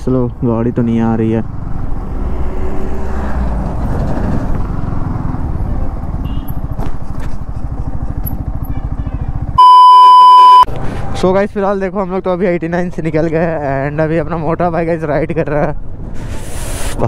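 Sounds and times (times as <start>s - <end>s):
motorcycle engine running: 4.6s - 9.6s
test-tone beep: 9.6s - 10.7s.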